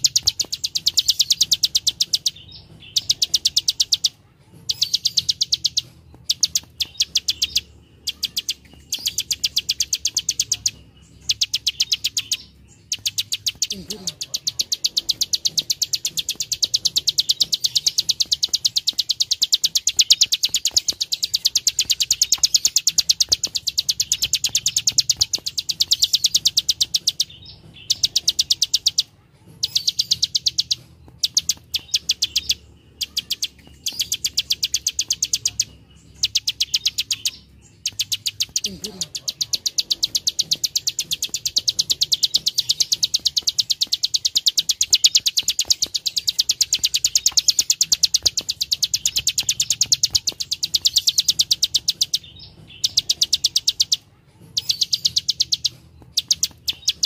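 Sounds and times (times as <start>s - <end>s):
bird clicking call: 0.0s - 54.0s, 54.6s - 57.0s.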